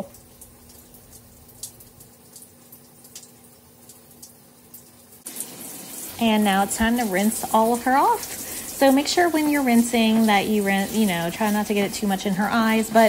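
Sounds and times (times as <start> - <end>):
wet dripping and squishing: 0.0 - 13.0
hand sprayer running water: 5.3 - 13.0.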